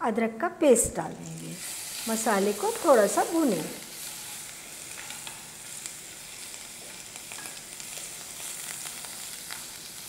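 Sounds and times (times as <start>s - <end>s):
spices sizzling in hot oil: 1.0s - 10.0s.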